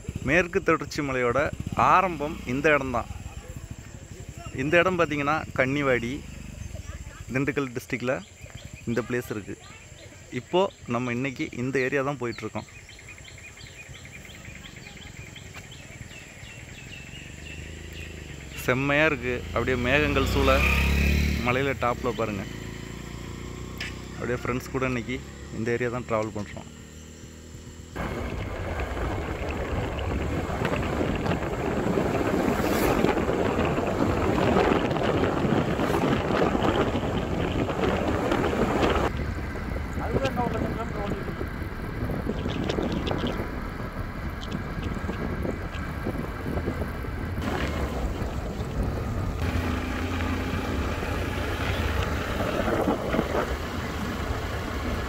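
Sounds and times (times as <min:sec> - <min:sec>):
motorcycle engine and road noise: 0:00.0 - 0:55.0
wind rushing over microphone: 0:27.5 - 0:55.0.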